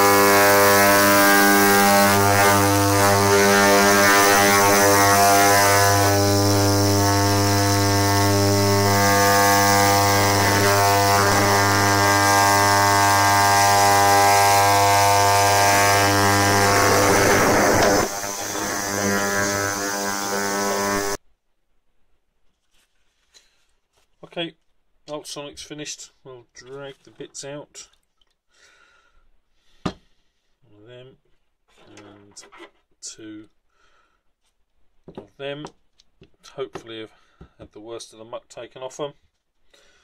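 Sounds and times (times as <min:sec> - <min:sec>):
ultrasonic cleaner buzzing: 0:00.0 - 0:21.2.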